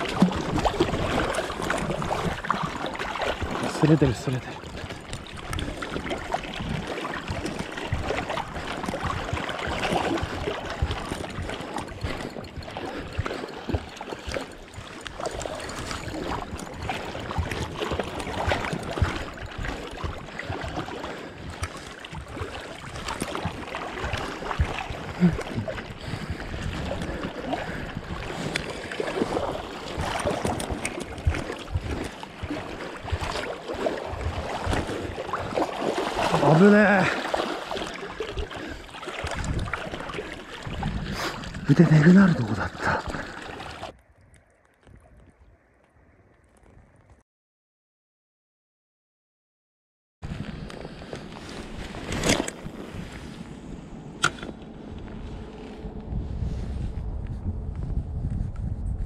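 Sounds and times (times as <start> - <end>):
wind noise on microphone: 0.0 - 36.5, 38.0 - 47.2, 50.2 - 59.0
flowing river water: 0.0 - 46.7.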